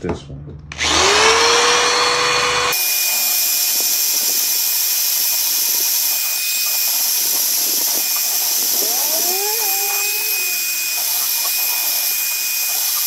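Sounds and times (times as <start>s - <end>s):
power tool motor whining: 0.7s - 13.0s
bristle brush scrubbing hiss: 4.0s - 13.0s.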